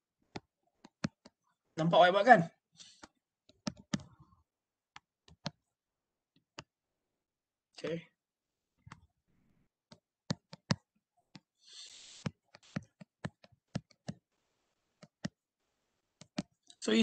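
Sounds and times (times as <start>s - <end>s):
sharp clicks and taps: 0.3s - 1.4s, 3.0s - 4.1s, 9.9s - 11.5s, 12.2s - 14.3s, 16.2s - 16.6s.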